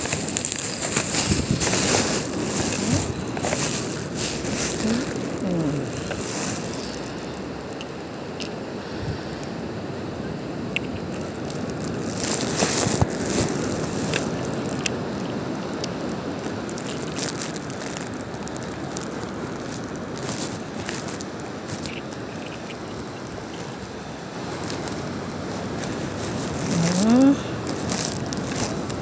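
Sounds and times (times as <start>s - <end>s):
wind: 0.0s - 29.0s.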